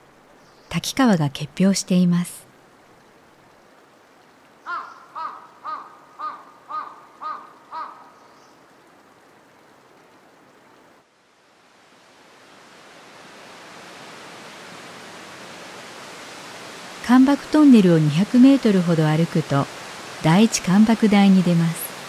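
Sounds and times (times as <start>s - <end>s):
faint outdoor noise: 0.0s - 22.0s
rushing falling water: 0.0s - 22.0s
crow cawing: 4.6s - 8.2s.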